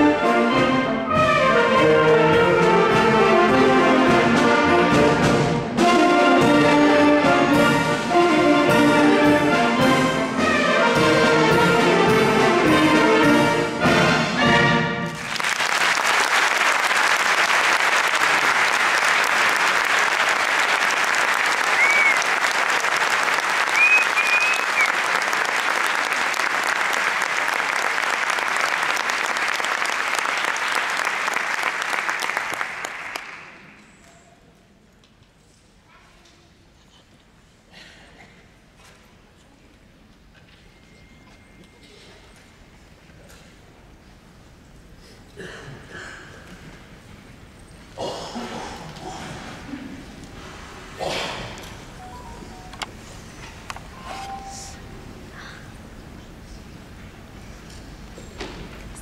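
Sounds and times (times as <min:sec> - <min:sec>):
concert wind band playing: 0:00.0 - 0:15.2
audience applause: 0:15.1 - 0:33.8
short whistles: 0:21.7 - 0:22.3, 0:23.7 - 0:25.0.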